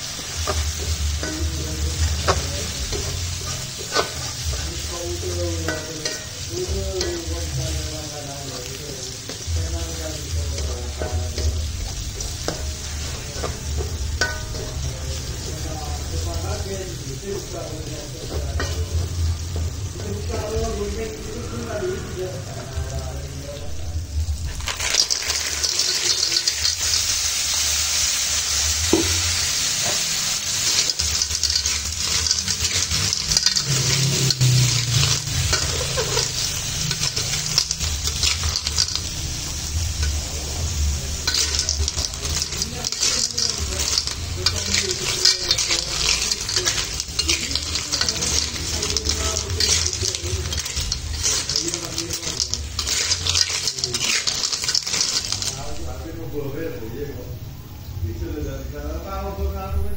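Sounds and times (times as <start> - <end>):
metal spatula scraping wok: 0.0 - 17.4, 23.6 - 56.8
sizzling in a wok: 0.0 - 59.9.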